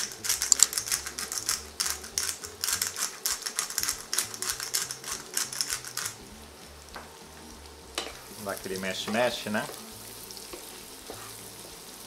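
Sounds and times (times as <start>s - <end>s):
pepper mill grinding: 0.0s - 6.3s.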